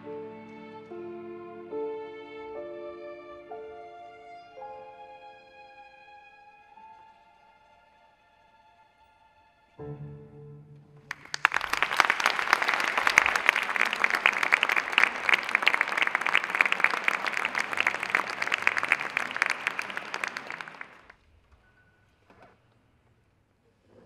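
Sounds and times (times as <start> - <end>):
audience applause: 11.1 - 21.2.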